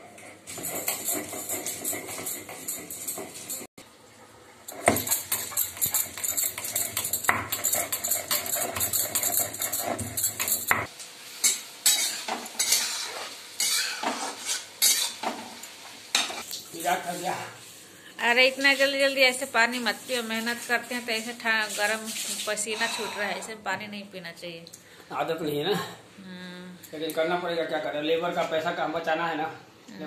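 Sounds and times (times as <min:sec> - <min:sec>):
metal spoon scraping a steel pan: 0:00.5 - 0:03.7, 0:04.7 - 0:10.8, 0:11.4 - 0:15.3, 0:22.4 - 0:23.6.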